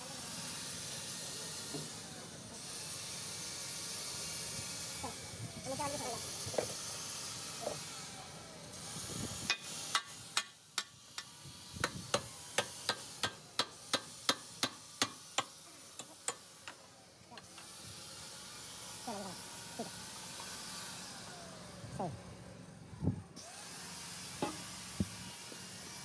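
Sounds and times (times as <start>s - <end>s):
steady hiss: 9.0s - 17.0s.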